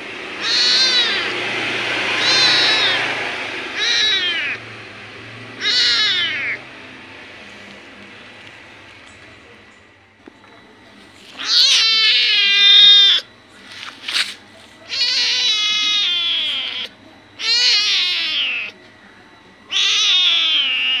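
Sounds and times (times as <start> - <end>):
kitten meowing: 0.4 - 1.4, 2.0 - 4.6, 5.6 - 6.6, 11.4 - 13.3, 14.9 - 18.8, 19.7 - 21.0.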